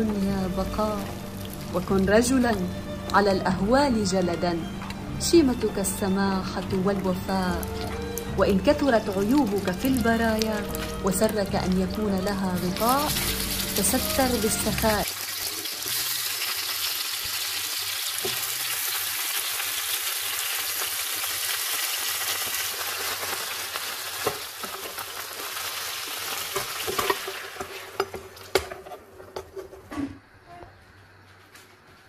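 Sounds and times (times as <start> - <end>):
meat sizzling in hot fat: 1.0 - 1.9, 12.2 - 28.5.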